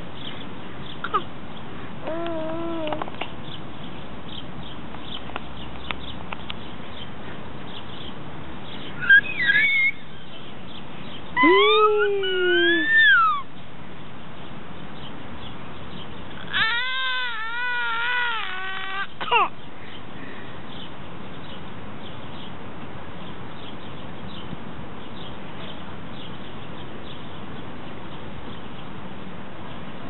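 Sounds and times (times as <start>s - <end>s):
infant squealing and babbling: 2.0s - 3.1s, 9.0s - 10.0s, 11.4s - 13.5s, 16.4s - 19.5s.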